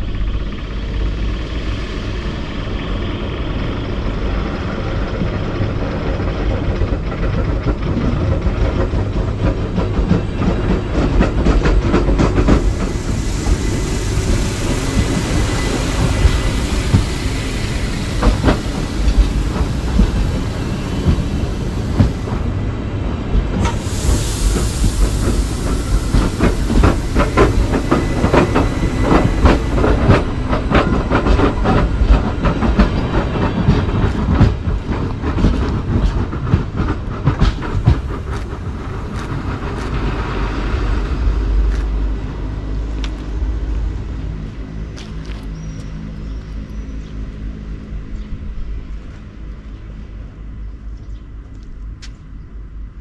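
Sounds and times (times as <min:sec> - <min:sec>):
railcar rumble: 0:00.0 - 0:53.0
high hiss: 0:12.4 - 0:22.6, 0:23.6 - 0:30.4.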